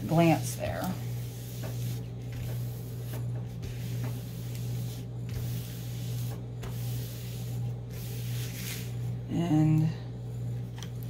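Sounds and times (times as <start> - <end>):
steady low hum: 0.0 - 11.0
hands rubbing across paper: 0.4 - 9.1.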